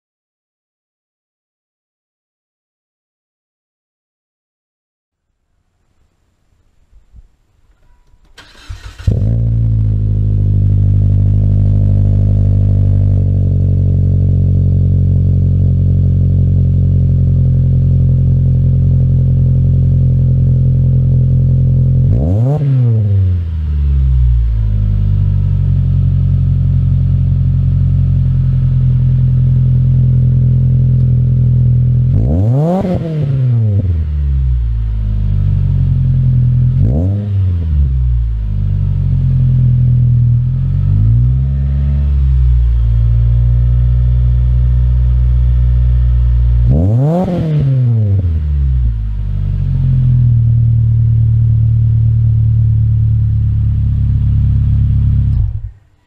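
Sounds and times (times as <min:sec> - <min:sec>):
car engine idling with throttle blips: 0:33.6 - 0:56.0.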